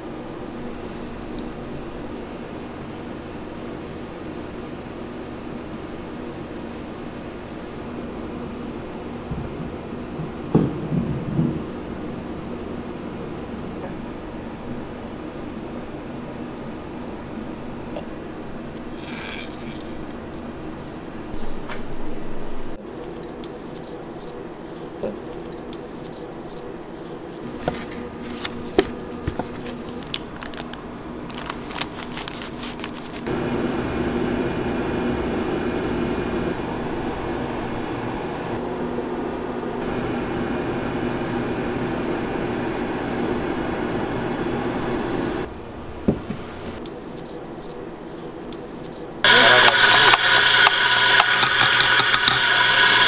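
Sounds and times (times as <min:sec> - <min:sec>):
steady hum: 0:00.0 - 0:53.0
coffee grinder grinding: 0:18.8 - 0:20.2, 0:31.3 - 0:33.3, 0:47.1 - 0:53.0.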